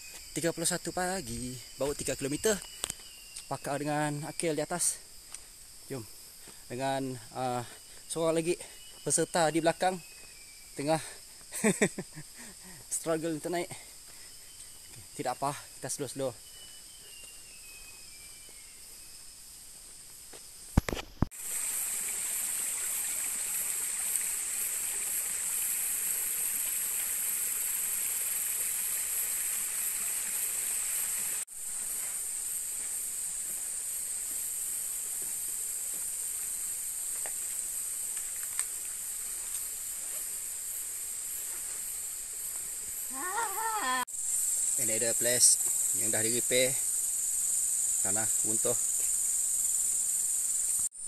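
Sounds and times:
insects droning: 0.0 - 51.0.

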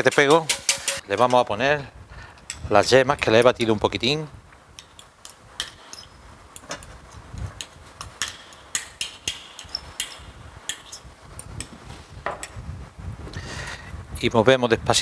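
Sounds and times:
fork tapping a bowl: 0.0 - 1.0, 7.6 - 11.0.

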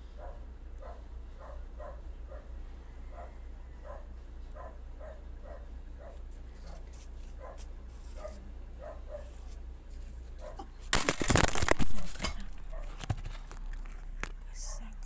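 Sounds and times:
microphone rubbing and rustling: 9.4 - 14.5.

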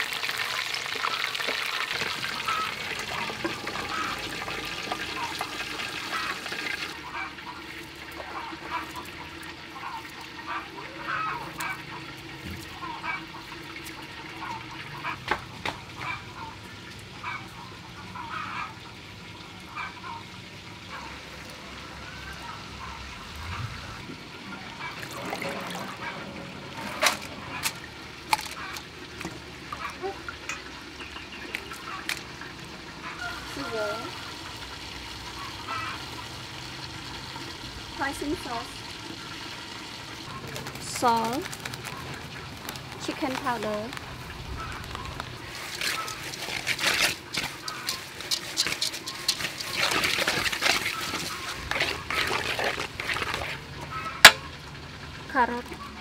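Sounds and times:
wet squishing in metal bowl: 1.8 - 17.5, 21.0 - 32.4, 40.2 - 54.6
hands swishing noodles in water: 45.4 - 53.7.

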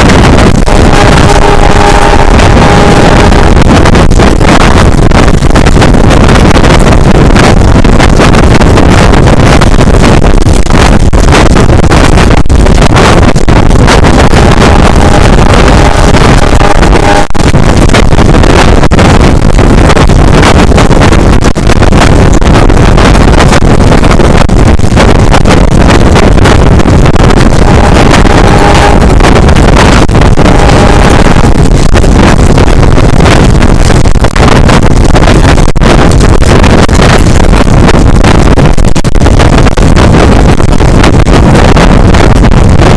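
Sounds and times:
wind buffeting microphone: 0.0 - 42.9
train rumbling: 0.2 - 4.6.

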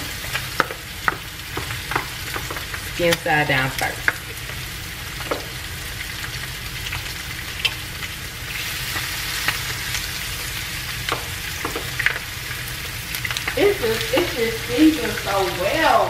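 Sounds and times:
chicken frying in oil: 0.0 - 16.0.

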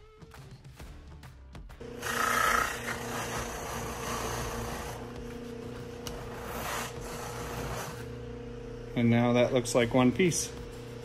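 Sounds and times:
buffing wheel motor humming: 1.8 - 9.2.

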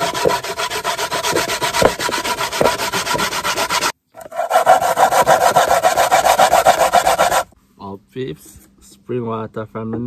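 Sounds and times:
coconut rasping on grater: 0.0 - 7.5.

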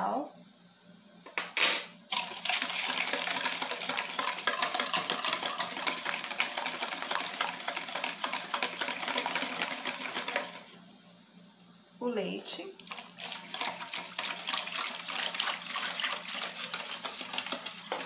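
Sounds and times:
whisk beating in metal bowl: 2.1 - 10.8, 12.8 - 18.0.

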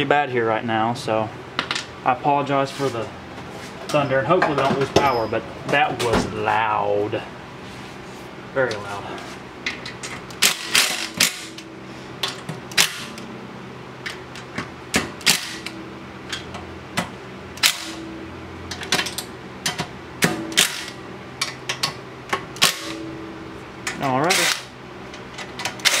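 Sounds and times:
cordless driver spinning bolts: 24.3 - 24.7.

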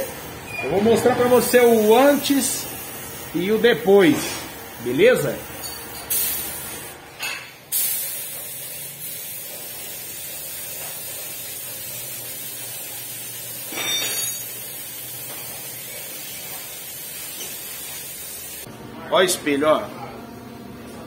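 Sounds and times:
spray gun hissing: 1.1 - 5.5, 6.1 - 6.9, 7.7 - 18.7
spray gun trigger bursts: 6.1 - 6.9, 7.7 - 13.7.

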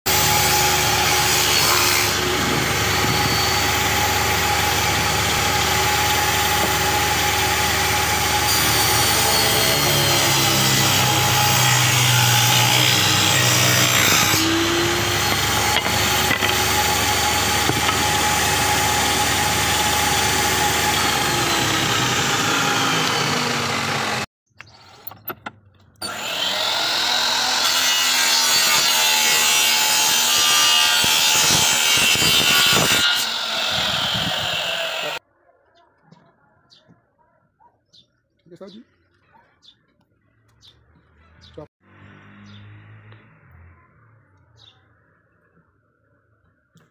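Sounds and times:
power saw cutting wood: 0.1 - 25.3, 26.0 - 35.2.

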